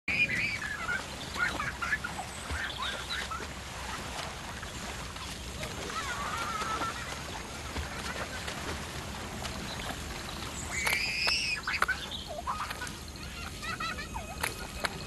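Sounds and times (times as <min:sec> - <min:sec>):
steady low hum: 0:00.1 - 0:15.0
water splashing: 0:00.1 - 0:15.0.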